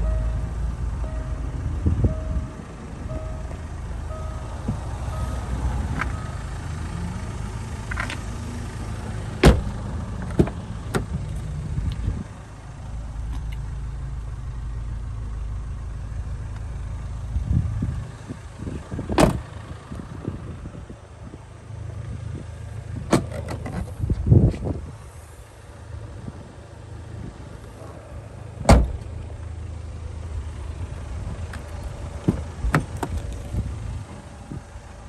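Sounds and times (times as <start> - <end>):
car door shutting thud: 9.4 - 9.7, 19.1 - 19.4, 28.6 - 29.1.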